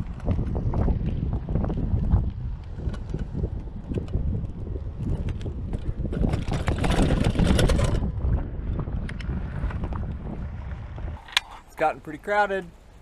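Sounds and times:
bike rolling down steps: 0:00.0 - 0:10.2
bike clicks and rattles: 0:00.0 - 0:10.4, 0:11.0 - 0:11.7
wind buffeting microphone: 0:00.0 - 0:13.0.

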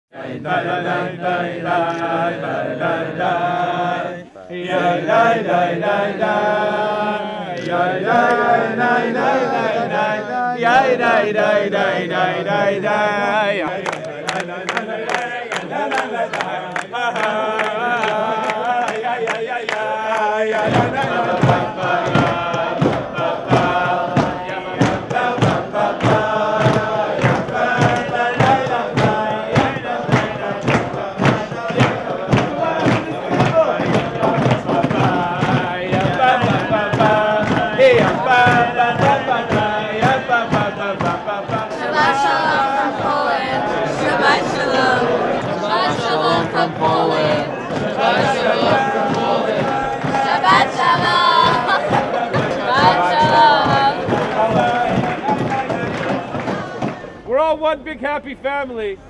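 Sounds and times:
crowd singing in unison: 0:00.0 - 0:57.4
hand-clapping: 0:07.6 - 0:57.1
steady thumping beat: 0:07.9 - 0:57.2.

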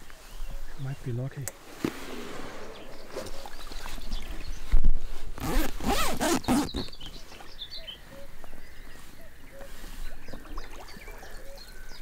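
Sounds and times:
faint water splashing: 0:01.6 - 0:05.4, 0:07.2 - 0:12.0
fabric zip being pulled: 0:05.4 - 0:06.8.

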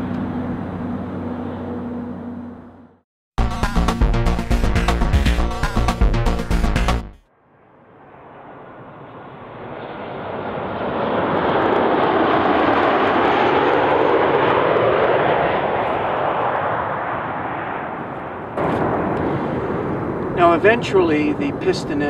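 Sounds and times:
jet airliner passing overhead: 0:00.0 - 0:02.8, 0:07.4 - 0:22.0.

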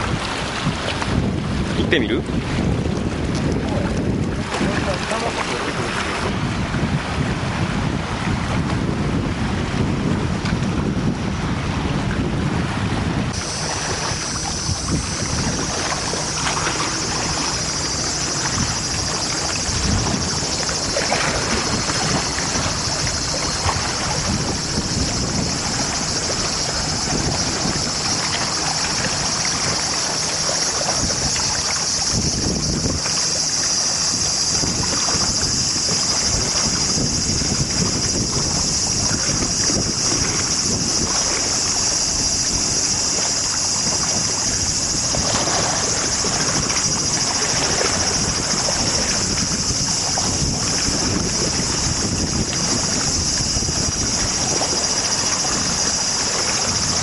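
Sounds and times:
water lapping at shore: 0:00.0 - 0:57.0
wind buffeting microphone: 0:00.0 - 0:57.0
steady high-pitched hiss: 0:13.4 - 0:57.0.

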